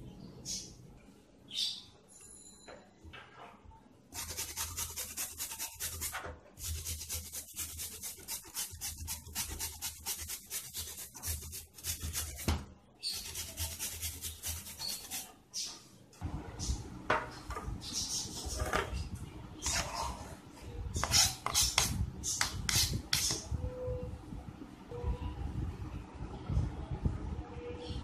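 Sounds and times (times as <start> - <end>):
carrot rasping on grater: 4.2 - 15.3.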